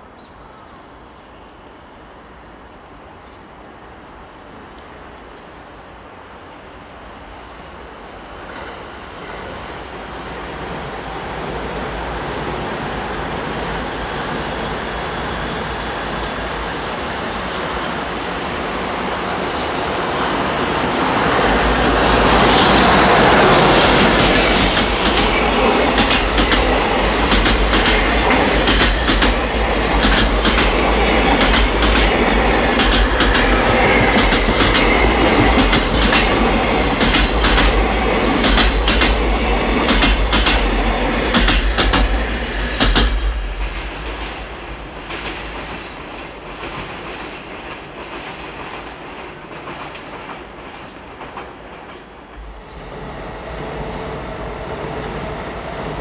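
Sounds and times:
freight train rumble: 1.9s - 56.0s
high wheel squeal: 18.0s - 23.3s, 28.0s - 35.5s
rhythmic wheel clicks on rails: 23.9s - 42.2s.

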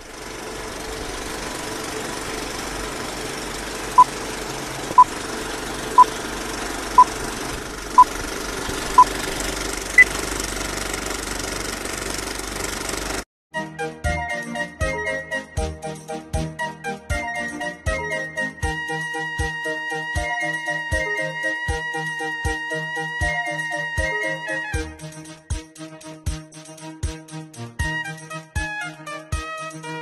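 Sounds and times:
film projector clatter: 0.0s - 13.3s.

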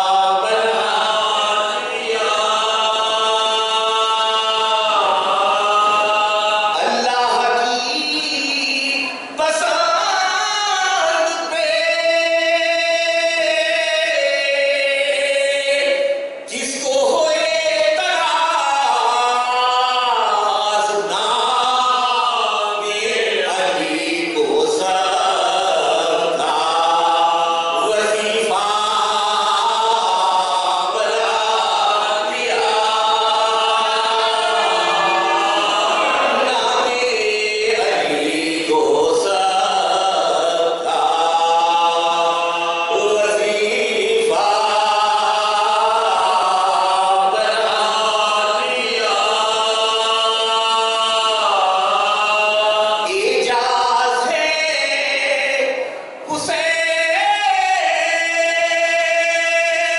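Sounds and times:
men chanting without instruments: 17.2s - 59.9s.

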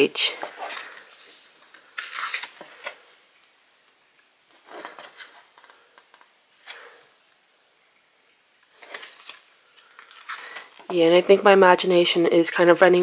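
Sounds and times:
book pages turning: 0.3s - 3.1s, 4.5s - 6.9s, 8.7s - 10.9s.

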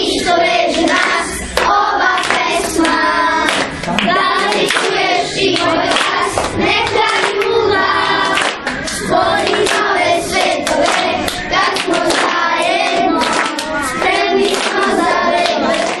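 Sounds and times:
children singing: 0.0s - 16.0s
hands clapping: 0.8s - 16.0s.

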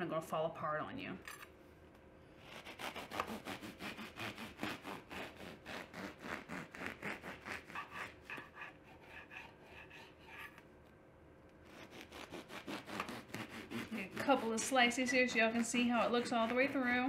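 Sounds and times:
knife sawing through bread: 2.4s - 10.6s, 11.6s - 17.0s.

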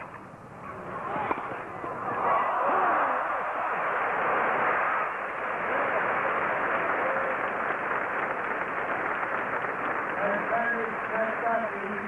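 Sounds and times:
crowd applauding: 2.1s - 12.0s.

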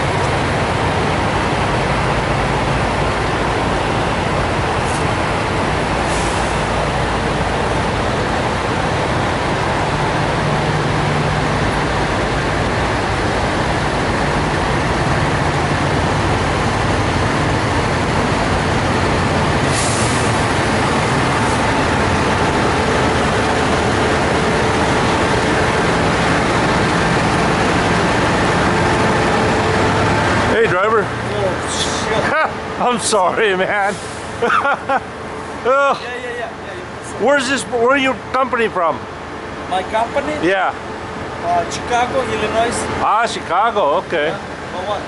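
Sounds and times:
diesel truck engines idling: 0.0s - 45.0s
air hiss: 19.6s - 20.4s.

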